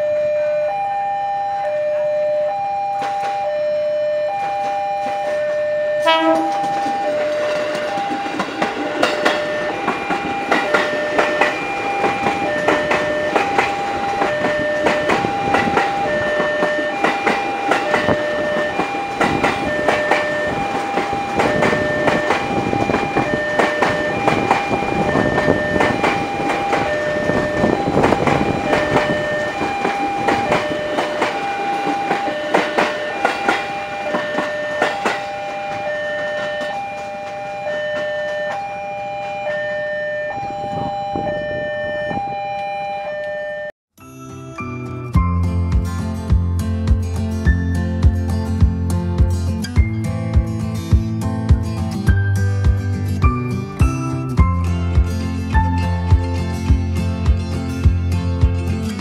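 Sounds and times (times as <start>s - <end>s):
level crossing alarm chiming: 0.0s - 45.8s
train wheels clicking over rail joints: 6.3s - 39.8s.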